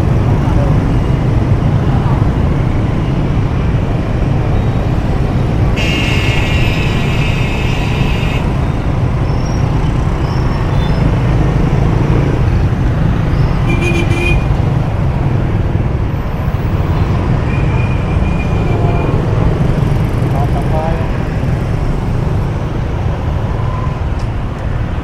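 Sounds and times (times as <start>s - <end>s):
road traffic rumble: 0.0s - 25.0s
vehicle horn: 5.8s - 8.6s, 13.7s - 14.5s.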